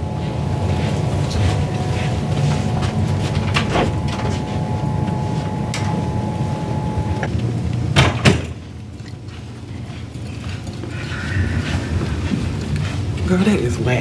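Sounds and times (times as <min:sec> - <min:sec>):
steady low hum: 0:00.0 - 0:14.0
door closing and latching: 0:03.3 - 0:08.6.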